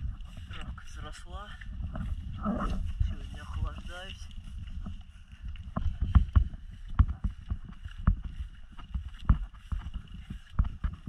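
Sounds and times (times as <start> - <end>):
footsteps on wet muddy grass: 0.0 - 11.0.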